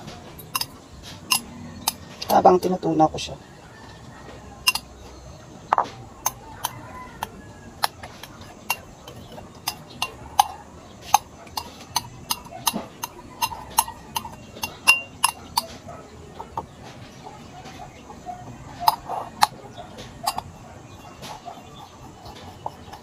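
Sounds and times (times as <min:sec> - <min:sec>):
metal spoon clinking on glass bowl: 0:00.4 - 0:02.4, 0:04.6 - 0:04.9, 0:07.9 - 0:15.7, 0:20.2 - 0:21.1.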